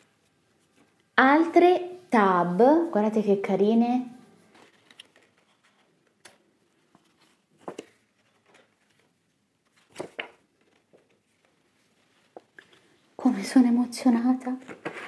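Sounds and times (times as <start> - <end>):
paper rustling: 4.4 - 13.0, 14.6 - 15.0.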